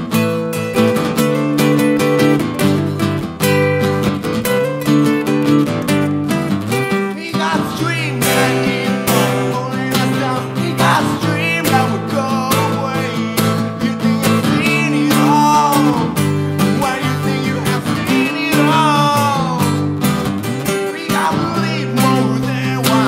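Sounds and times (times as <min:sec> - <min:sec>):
acoustic guitars strummed: 0:00.0 - 0:23.0
man singing: 0:06.8 - 0:23.0.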